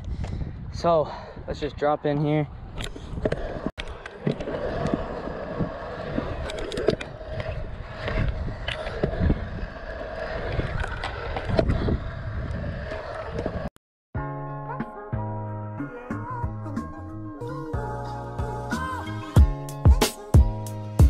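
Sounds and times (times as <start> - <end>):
scooter wheels whirring: 2.2 - 13.7.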